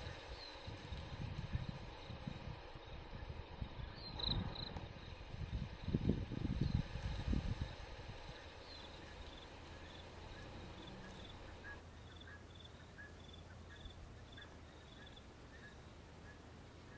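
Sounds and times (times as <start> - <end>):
low steady hum: 0.0 - 16.9
lower chirps: 8.6 - 16.4.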